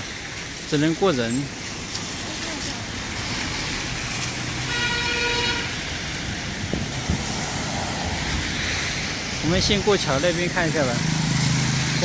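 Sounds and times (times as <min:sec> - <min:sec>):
road traffic: 0:00.0 - 0:12.0
vehicle horn: 0:04.6 - 0:05.8.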